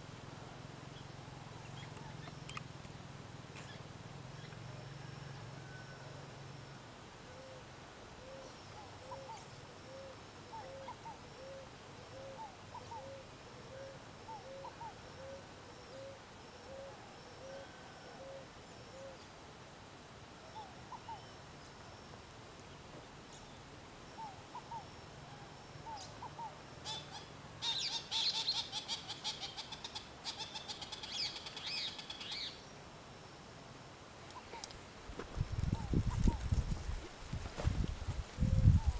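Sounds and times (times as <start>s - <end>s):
small birds chirping faintly: 0.0s - 38.9s
bird soft hoots: 8.2s - 19.2s.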